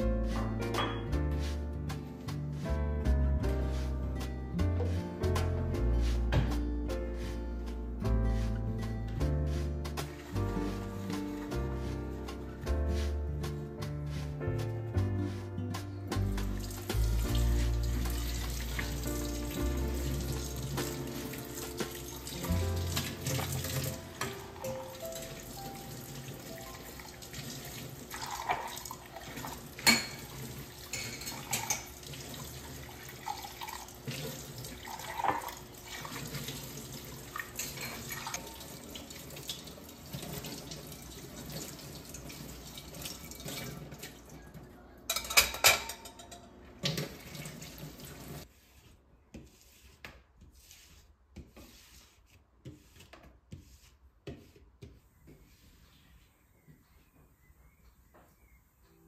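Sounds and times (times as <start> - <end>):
tap water running into sink: 16.6 - 44.4, 46.8 - 48.5.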